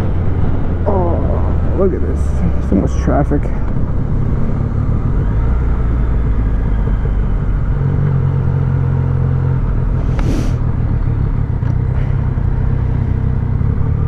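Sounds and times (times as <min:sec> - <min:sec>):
motorcycle engine at low revs: 0:00.0 - 0:14.0
short hiss: 0:10.0 - 0:10.6.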